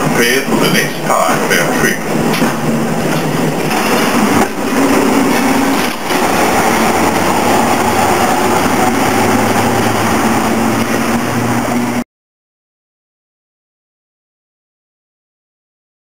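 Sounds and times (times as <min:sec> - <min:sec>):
electric tram motor hum: 0:00.0 - 0:12.0.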